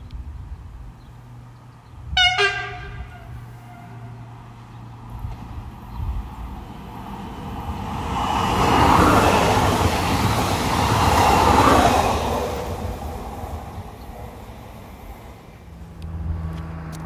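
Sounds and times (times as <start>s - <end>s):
train wheels rushing on rails: 5.1s - 15.6s.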